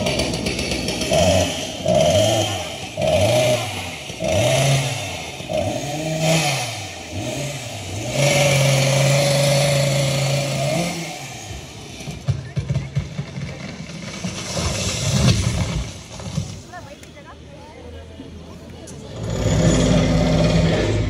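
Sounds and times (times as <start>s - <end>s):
engine revving: 0.0s - 12.2s, 19.0s - 21.0s.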